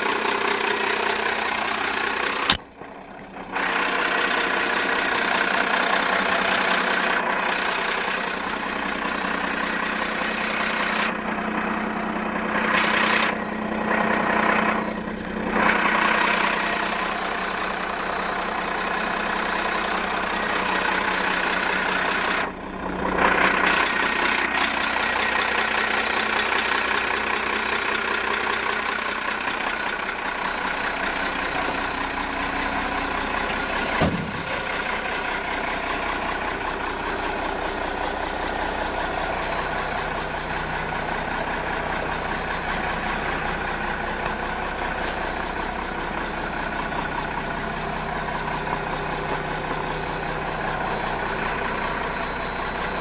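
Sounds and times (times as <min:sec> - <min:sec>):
diesel truck engine idling: 0:00.0 - 0:53.0
short thump: 0:34.0 - 0:34.6.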